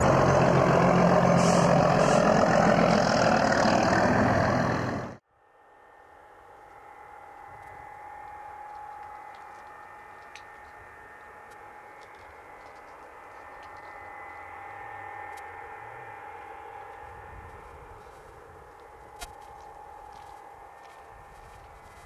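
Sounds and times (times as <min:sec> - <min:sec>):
high-pitched hum: 0:00.0 - 0:22.0
wind rumble on microphone: 0:16.8 - 0:22.0.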